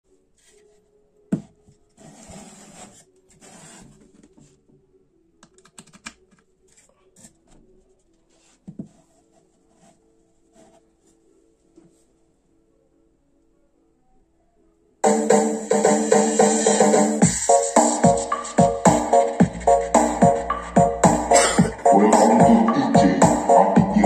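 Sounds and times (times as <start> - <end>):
box scraping on table: 2.0 - 4.2.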